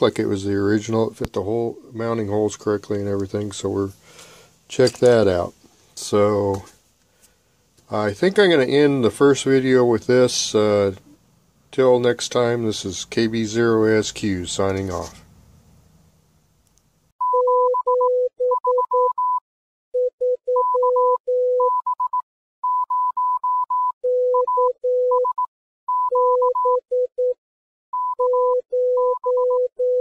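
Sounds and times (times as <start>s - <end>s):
morse code beeps: 17.2s - 19.4s, 20.0s - 30.0s.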